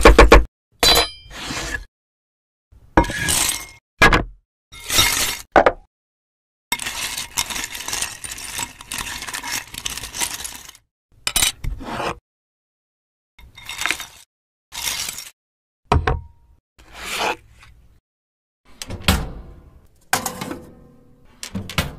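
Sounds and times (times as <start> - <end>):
plastic pieces rattling in glass bowl: 6.8 - 10.8.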